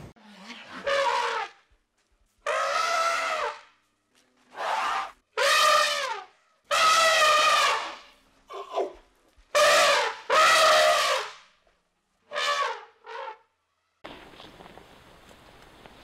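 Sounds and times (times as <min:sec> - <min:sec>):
elephant trumpeting: 0:00.2 - 0:01.6, 0:02.4 - 0:03.6, 0:04.5 - 0:08.9, 0:09.5 - 0:11.3.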